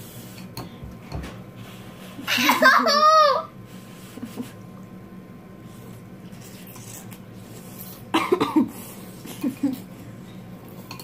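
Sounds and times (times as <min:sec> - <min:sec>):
girl coughing: 0:08.1 - 0:08.8.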